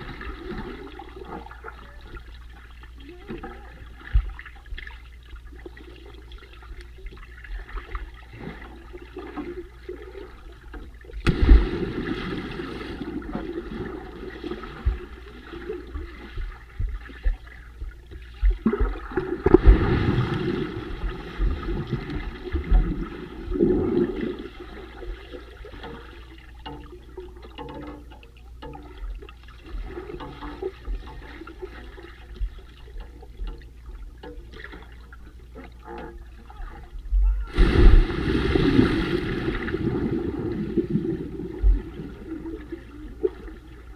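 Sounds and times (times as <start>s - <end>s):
underwater rush of water: 0.0s - 27.7s, 36.4s - 43.9s
loud underwater bubbling surges: 11.2s - 14.4s, 18.7s - 24.6s, 37.5s - 42.4s.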